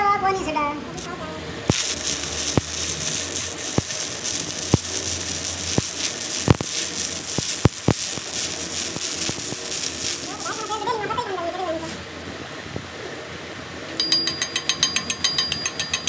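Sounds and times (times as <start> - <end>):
welding arc crackling and popping: 0.9 - 12.0.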